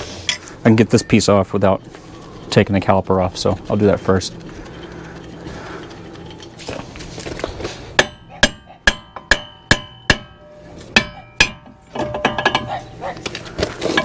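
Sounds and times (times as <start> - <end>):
metal-on-metal hammer blows: 8.0 - 12.8.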